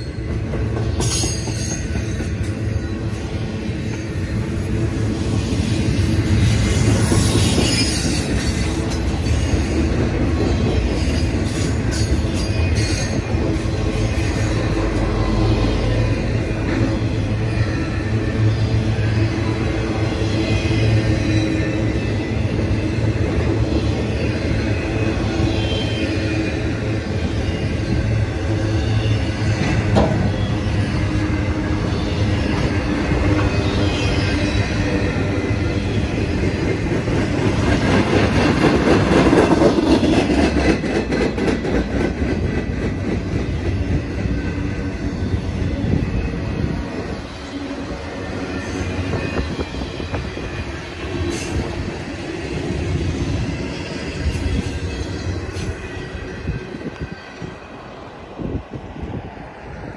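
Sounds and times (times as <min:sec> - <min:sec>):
wheels clattering on rail: 0:00.0 - 0:17.4, 0:28.9 - 0:31.1, 0:31.9 - 0:44.6
freight train rolling past: 0:00.0 - 0:59.9.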